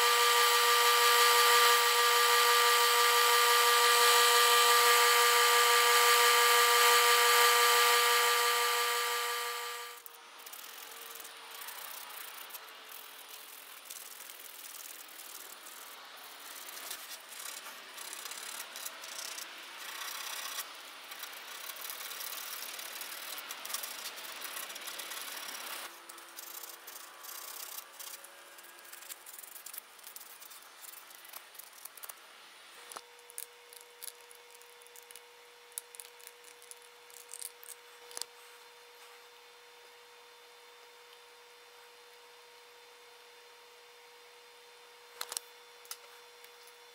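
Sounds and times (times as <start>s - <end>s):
belt sander spinning down: 0.0s - 10.0s
sandpaper rubbing wood: 10.5s - 31.9s.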